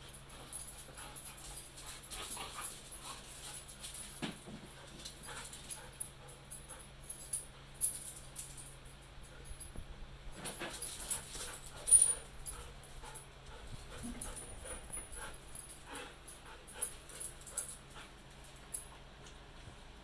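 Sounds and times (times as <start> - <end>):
dogs panting: 0.1 - 7.4, 10.7 - 19.1.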